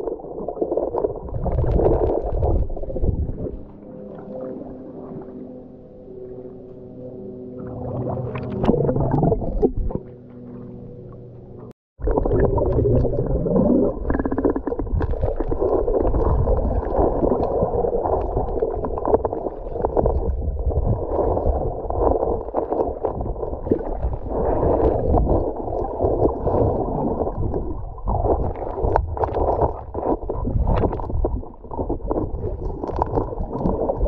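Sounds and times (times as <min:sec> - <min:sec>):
water gurgles: 0:00.0 - 0:05.4, 0:07.6 - 0:10.1, 0:12.0 - 0:34.0
underwater rumble of moving water: 0:00.0 - 0:34.0
small underwater clicks: 0:28.2 - 0:34.0.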